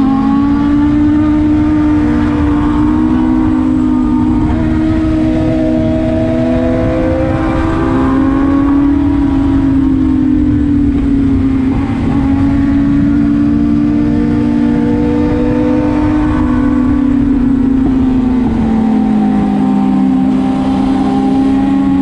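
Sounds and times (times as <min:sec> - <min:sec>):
motorcycle engine at speed: 0:00.0 - 0:22.0
wind rumble on microphone: 0:00.0 - 0:22.0.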